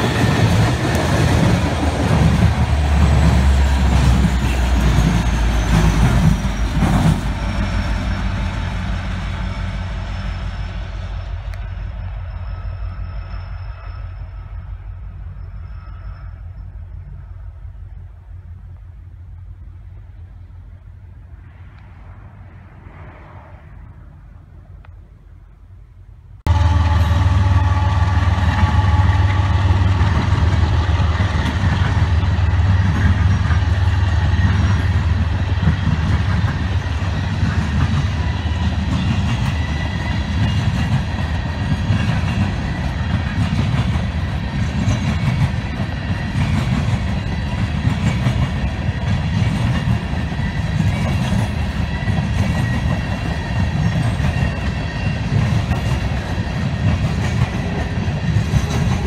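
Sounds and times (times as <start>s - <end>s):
train wheels clattering on rails: 0.0s - 14.3s, 26.5s - 59.0s.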